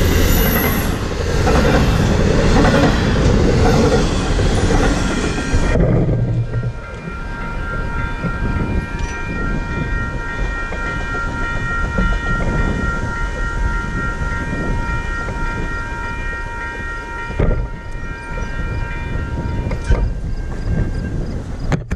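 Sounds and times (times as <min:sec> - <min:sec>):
low rumble: 0:00.0 - 0:15.5
level crossing warning bell: 0:00.0 - 0:21.6.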